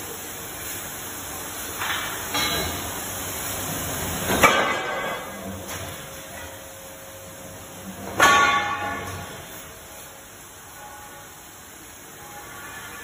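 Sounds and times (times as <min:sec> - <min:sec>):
workshop din: 0:01.7 - 0:03.1, 0:04.0 - 0:07.0, 0:07.8 - 0:10.1.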